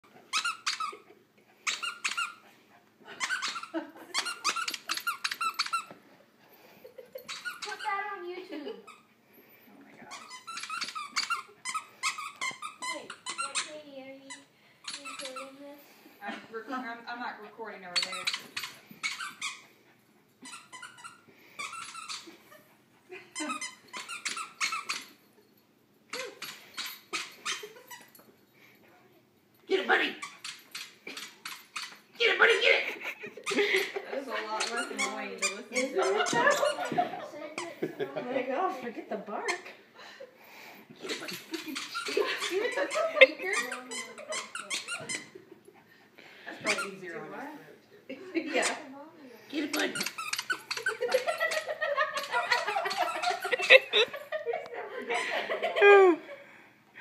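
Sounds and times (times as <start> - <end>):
rubber squeaky toy squeaking: 0.3 - 2.4, 3.2 - 6.0, 7.3 - 8.0, 10.1 - 15.6, 18.0 - 19.7, 20.4 - 22.4, 23.4 - 25.2, 26.1 - 28.1, 30.2 - 32.1, 34.6 - 37.0, 41.0 - 45.4, 46.6 - 47.0, 49.6 - 54.0.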